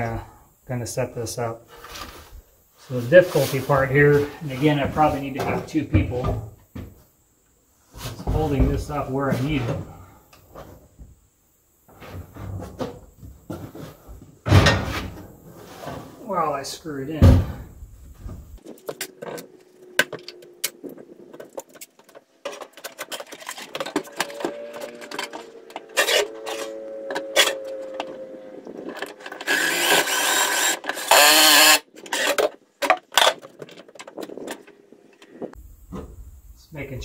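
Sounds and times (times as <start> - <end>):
cordless drill driving screw: 29.2 - 32.5.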